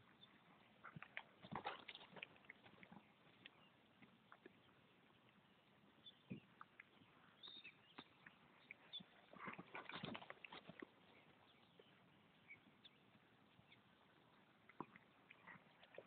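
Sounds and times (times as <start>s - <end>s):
horse hoofbeats on grass: 0.8s - 4.6s, 7.4s - 11.9s.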